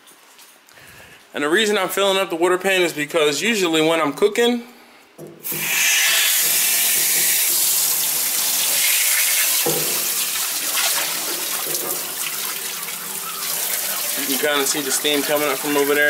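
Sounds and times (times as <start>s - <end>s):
hose spraying water: 5.5s - 16.0s.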